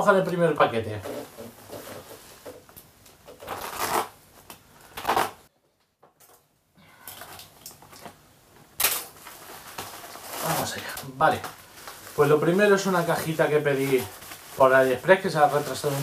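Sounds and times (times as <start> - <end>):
plastic envelope rustling: 0.1 - 5.5, 8.8 - 16.0.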